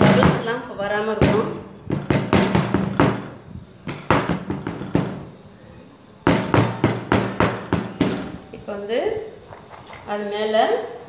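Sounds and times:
cake tin knocking on table: 1.2s - 5.3s, 6.3s - 8.4s.

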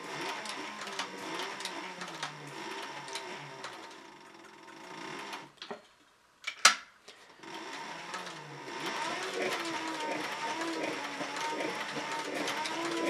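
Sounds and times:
sewing machine stitching leather: 0.0s - 5.6s, 7.4s - 13.0s.

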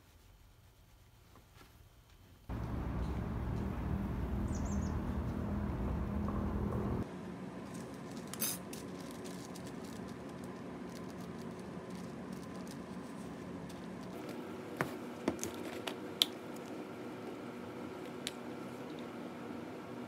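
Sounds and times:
steady hum: 2.5s - 8.0s.

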